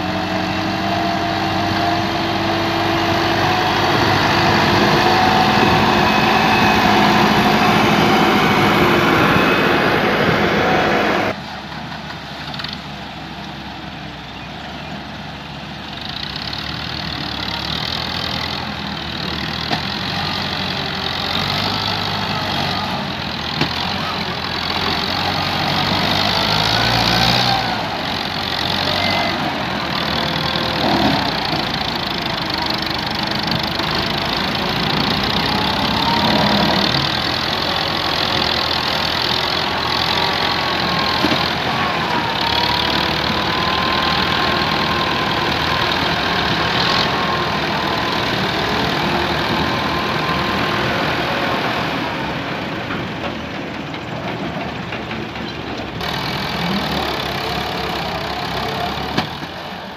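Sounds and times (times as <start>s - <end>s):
tractor diesel engine straining: 0.0s - 59.9s.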